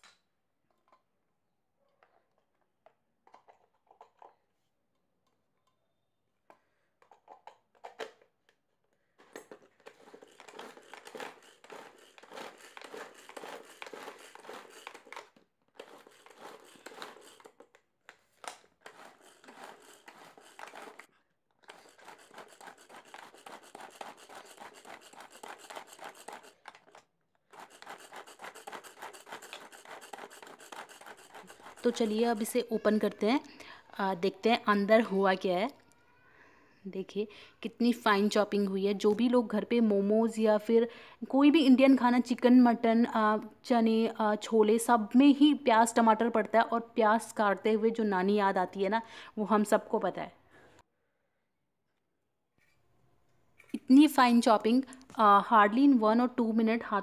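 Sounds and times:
pull-cord chopper whirring: 0:09.8 - 0:17.6.

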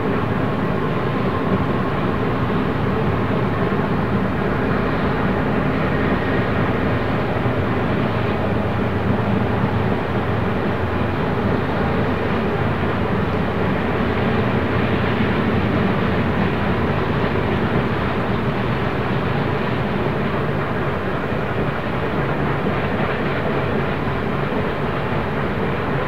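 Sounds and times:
train wheels rumbling on rail: 0:00.0 - 0:26.0.

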